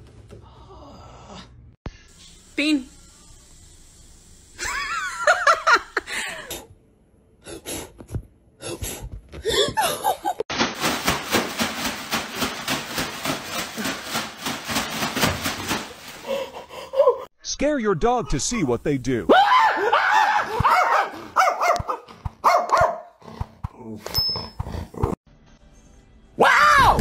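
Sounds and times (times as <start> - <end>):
person laughing hard: 4.6 - 6.6, 9.5 - 10.4, 16.2 - 17.3.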